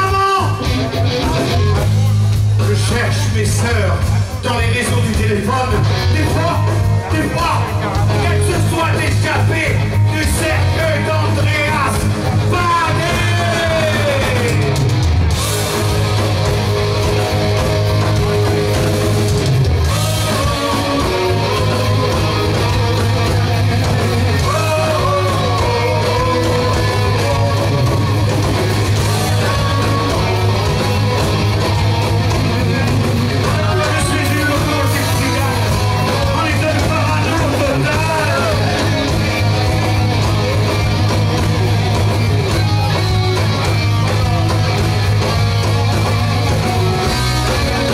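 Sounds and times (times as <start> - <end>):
rock band playing: 0.0 - 47.9.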